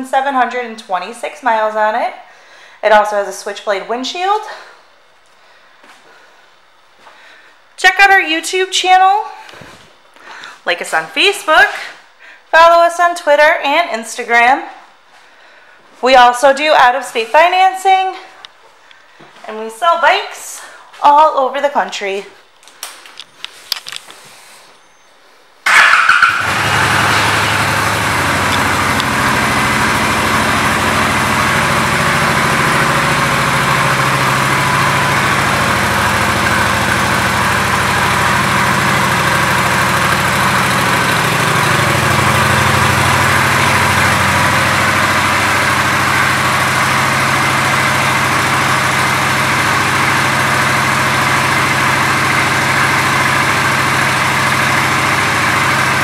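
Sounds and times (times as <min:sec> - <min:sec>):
motorcycle engine idling: 0:25.6 - 0:56.0.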